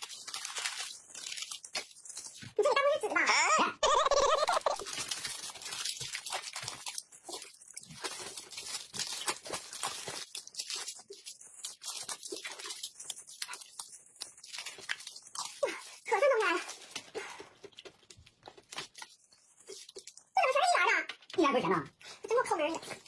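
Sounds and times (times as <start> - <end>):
plastic wrapper crinkling: 0.0 - 3.2, 3.8 - 23.0
crunching and mouth clicks: 3.8 - 20.4.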